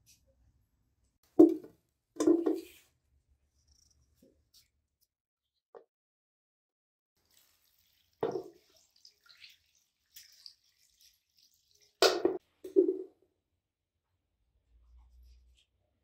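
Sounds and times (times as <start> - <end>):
water trickling: 7.2 - 12.3
water splashing in a container: 7.2 - 12.4.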